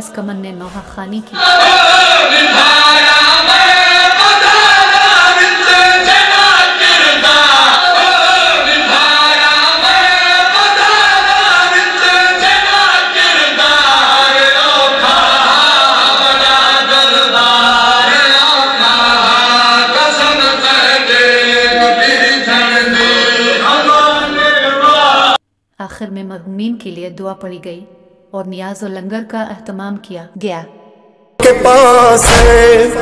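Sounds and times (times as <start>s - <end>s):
crowd of men reciting: 1.3s - 25.4s, 31.4s - 33.0s
men chanting a lament: 1.3s - 25.4s, 31.4s - 33.0s.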